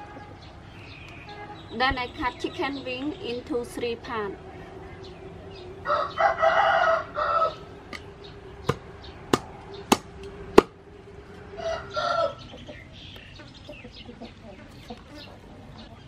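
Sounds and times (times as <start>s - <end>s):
chicken calling: 4.3s - 16.0s
rooster crowing: 4.9s - 9.9s, 10.9s - 12.9s
cleaver chopping on wooden board: 8.7s - 10.8s.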